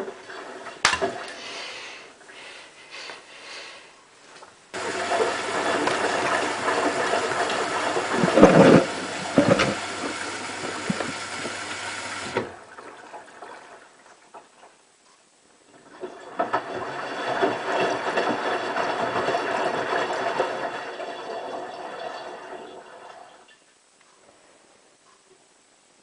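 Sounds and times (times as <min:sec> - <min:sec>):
water rushing into washing machine: 0:00.0 - 0:01.4, 0:04.8 - 0:14.3, 0:15.7 - 0:23.5
low steady hum: 0:00.0 - 0:26.0.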